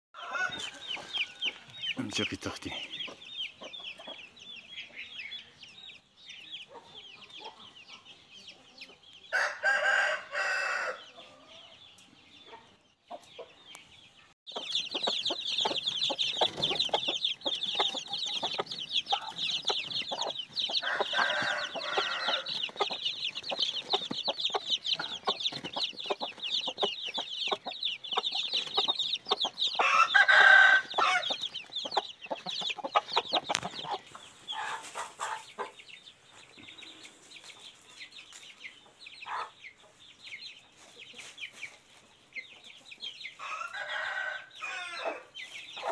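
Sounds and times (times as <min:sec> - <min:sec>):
chicken crowing: 0:00.2 - 0:01.7, 0:09.3 - 0:11.4, 0:20.8 - 0:22.6, 0:29.8 - 0:31.4, 0:43.4 - 0:45.3
chicks peeping: 0:00.2 - 0:45.9.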